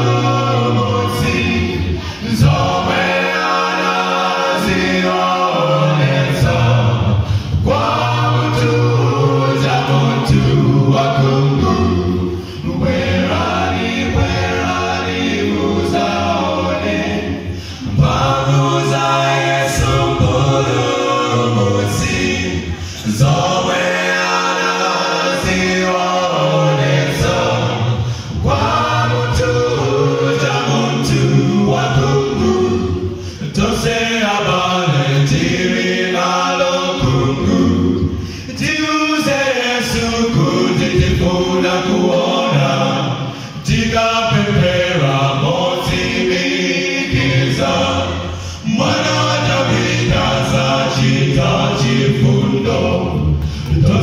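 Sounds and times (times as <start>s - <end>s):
men singing in harmony: 0.0s - 54.0s.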